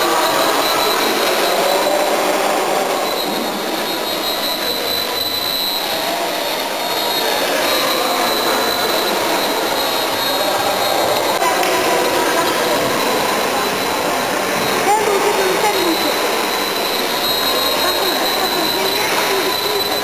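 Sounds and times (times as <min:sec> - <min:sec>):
model helicopter high whine: 0:00.0 - 0:20.0.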